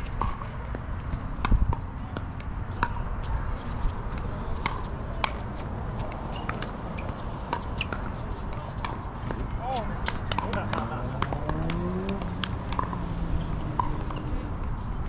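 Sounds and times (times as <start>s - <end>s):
shuffling footsteps on hard court: 3.2s - 15.0s.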